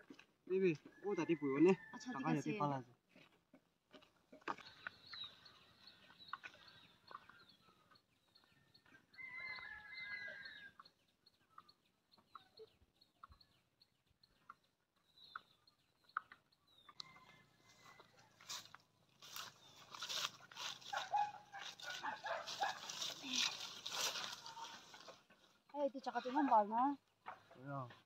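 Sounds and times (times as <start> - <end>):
faint chicken clucking: 0.1 - 26.6
drawn-out bird call: 4.6 - 18.3.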